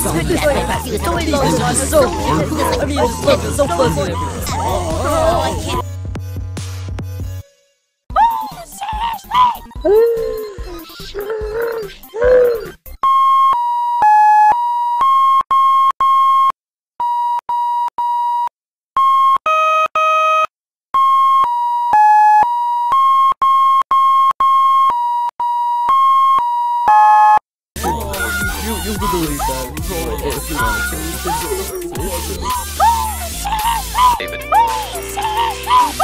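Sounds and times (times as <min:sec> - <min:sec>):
short vocal cry: 0:00.0 - 0:05.8, 0:08.2 - 0:12.8, 0:27.8 - 0:36.0
busy music with voices: 0:00.0 - 0:06.0, 0:08.1 - 0:12.7, 0:27.8 - 0:36.0.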